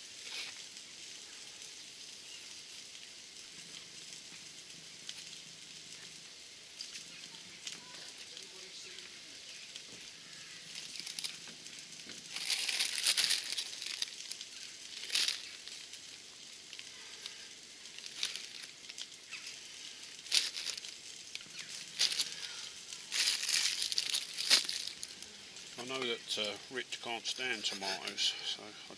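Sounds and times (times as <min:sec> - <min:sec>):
plastic bag crinkling: 0:09.8 - 0:26.5.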